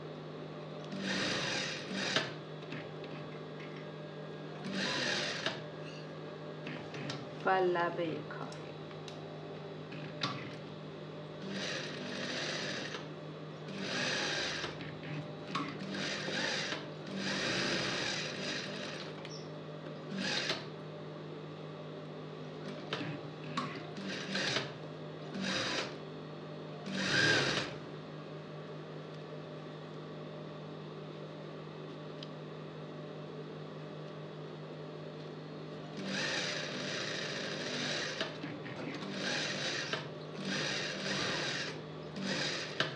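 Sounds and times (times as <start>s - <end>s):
sewing machine stitching: 0.9s - 2.9s, 4.6s - 5.6s, 11.4s - 13.0s, 13.7s - 19.1s, 24.0s - 24.7s, 25.4s - 26.0s, 26.9s - 27.8s, 36.0s - 42.9s.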